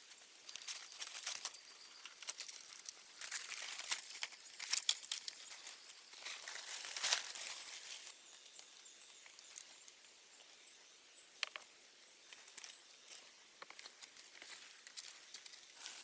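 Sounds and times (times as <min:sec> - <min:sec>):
dry palm fronds rustling: 0:00.0 - 0:08.6, 0:12.4 - 0:16.0
faint outdoor hiss: 0:00.0 - 0:16.0.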